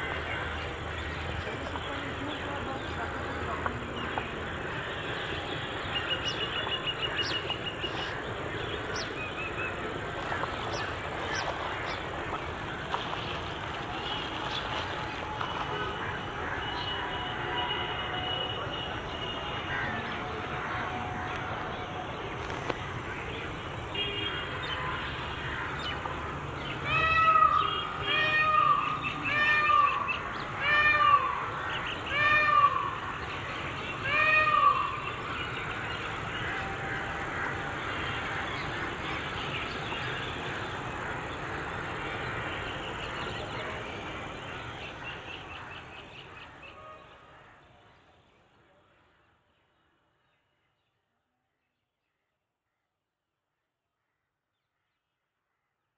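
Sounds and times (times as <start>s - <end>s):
outdoor ambience: 0.0s - 55.9s
loud animal calls: 26.8s - 35.6s.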